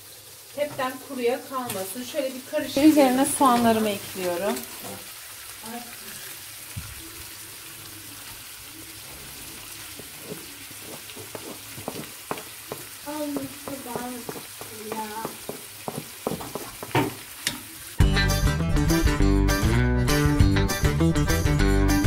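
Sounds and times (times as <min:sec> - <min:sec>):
meat sizzling in a frying pan: 0:00.0 - 0:18.1
onions scraped off cutting board: 0:09.3 - 0:12.6
cutting board knocking on pan: 0:09.9 - 0:17.6.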